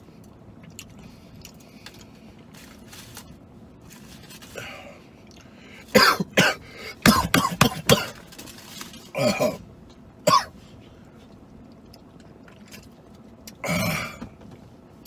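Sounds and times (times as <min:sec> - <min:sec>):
man coughing: 0:05.9 - 0:08.2, 0:09.1 - 0:09.6, 0:10.2 - 0:10.6, 0:13.6 - 0:14.3
man clearing throat: 0:06.0 - 0:08.2, 0:09.1 - 0:09.6, 0:10.3 - 0:10.5, 0:13.6 - 0:14.3.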